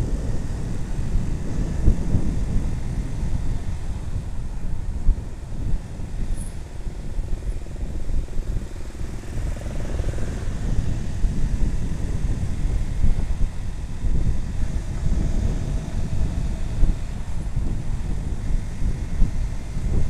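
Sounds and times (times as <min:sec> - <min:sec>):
motorcycle engine and road noise: 0:00.0 - 0:20.0
passing motorcycle engine: 0:00.0 - 0:20.0
wind buffeting microphone: 0:00.0 - 0:20.0.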